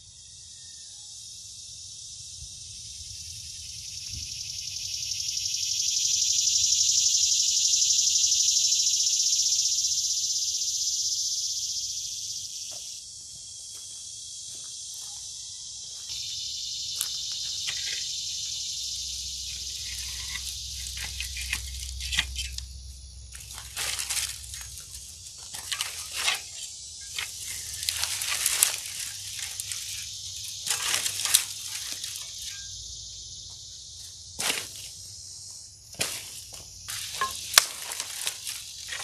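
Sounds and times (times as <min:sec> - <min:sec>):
insects droning: 0:00.0 - 0:39.0
rake dragging through dry brush: 0:19.4 - 0:22.6, 0:23.3 - 0:32.7, 0:36.0 - 0:39.0.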